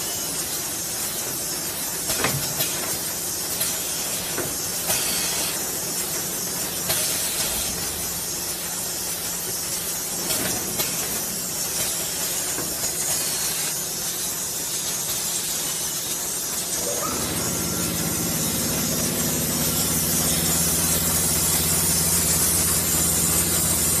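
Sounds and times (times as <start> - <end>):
machinery hiss: 0.0 - 24.0
low motor hum: 16.8 - 24.0.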